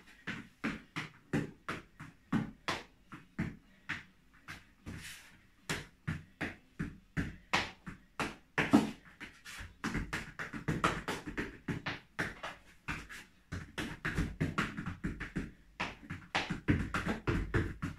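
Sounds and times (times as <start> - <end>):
shoes stamping on wooden floor: 5.7 - 17.9.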